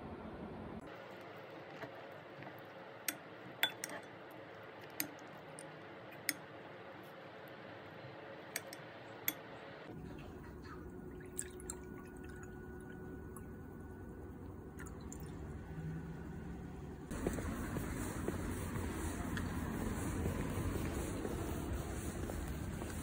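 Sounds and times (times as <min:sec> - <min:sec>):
metal spoon clinking on ceramic bowl: 0:03.6 - 0:04.1
liquid pouring into a glass: 0:11.2 - 0:13.5.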